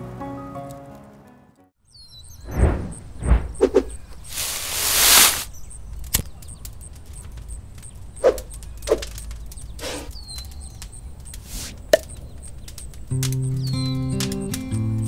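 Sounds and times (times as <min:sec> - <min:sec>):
rustling: 0:02.5 - 0:11.9.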